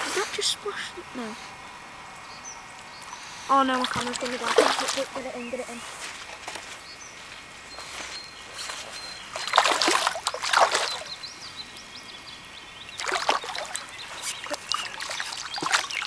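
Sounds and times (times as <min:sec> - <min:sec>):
fish thrashing and splashing: 0:03.8 - 0:05.3, 0:09.4 - 0:11.2, 0:13.0 - 0:16.0.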